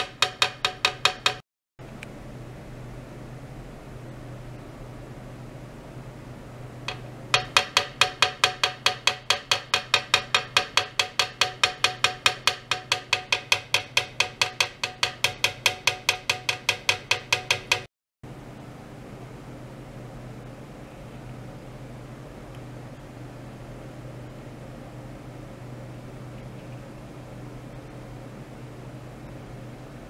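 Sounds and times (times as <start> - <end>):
even ticking with ringing tone: 0.0 - 1.4, 6.9 - 17.9.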